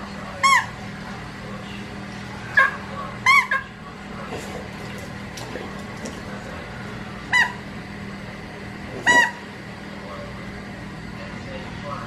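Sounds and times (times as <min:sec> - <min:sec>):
dog whining: 0:08.9 - 0:09.5.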